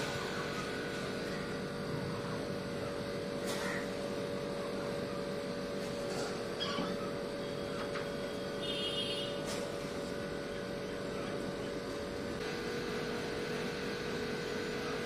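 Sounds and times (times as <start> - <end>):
electrical hum: 0.0 - 15.0
puppy whining: 6.5 - 7.3.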